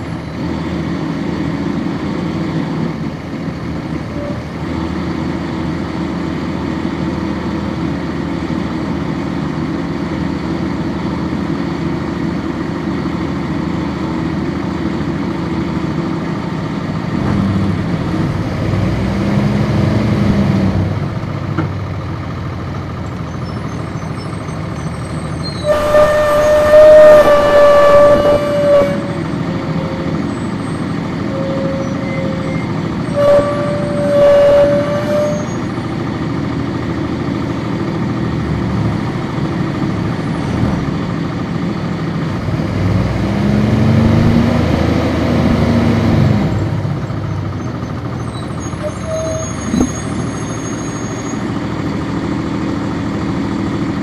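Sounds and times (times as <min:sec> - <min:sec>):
bus diesel engine running: 0:00.0 - 0:54.0
loud bus horn: 0:25.4 - 0:30.6, 0:31.2 - 0:35.8, 0:48.7 - 0:51.5.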